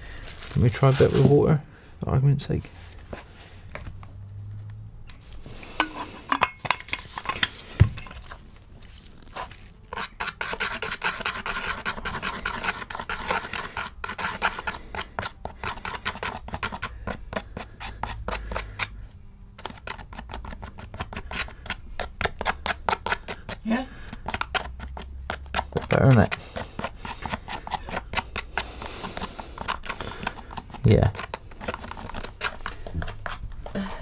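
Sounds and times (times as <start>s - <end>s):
metal tool scraping paste: 5.6s - 8.4s, 9.3s - 19.0s, 19.6s - 33.8s.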